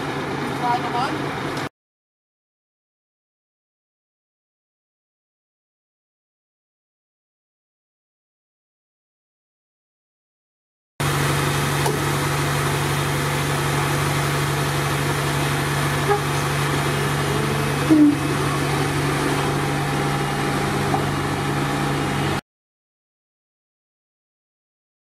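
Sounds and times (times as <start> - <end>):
diesel engine idling: 11.0 - 22.4.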